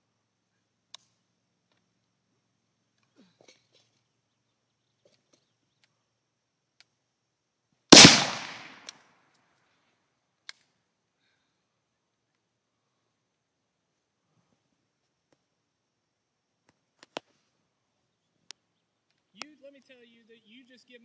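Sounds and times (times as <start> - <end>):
rifle shot: 7.9 - 8.9
faint clicks: 10.4 - 10.8.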